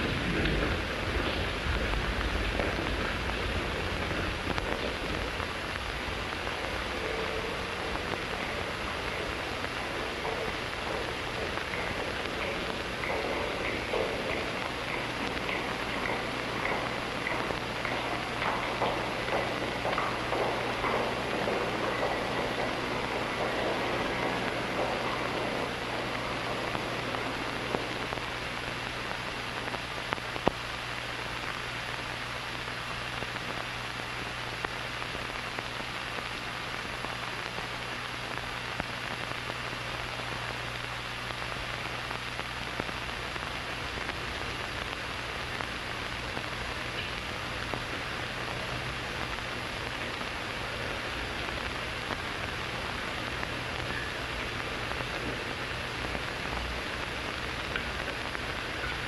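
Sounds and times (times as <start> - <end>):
low mains hum: 0.0 - 59.0
steady hiss: 0.0 - 59.0.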